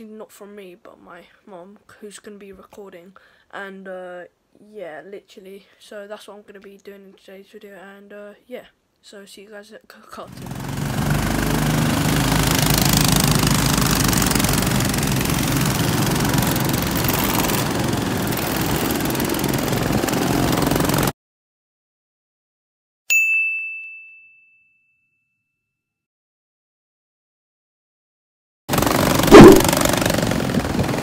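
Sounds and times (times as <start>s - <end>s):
go-kart engines: 10.3s - 21.1s, 28.7s - 31.0s
bright ding: 23.1s - 25.6s.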